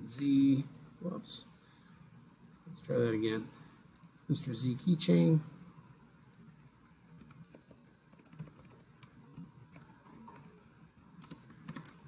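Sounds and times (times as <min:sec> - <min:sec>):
faint keyboard typing: 0:02.9 - 0:04.4, 0:06.2 - 0:12.0.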